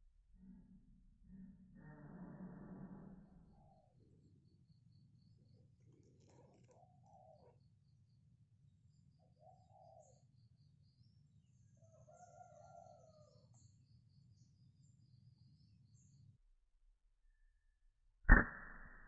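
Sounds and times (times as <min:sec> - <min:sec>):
faint rooster crowing: 0:11.8 - 0:13.6.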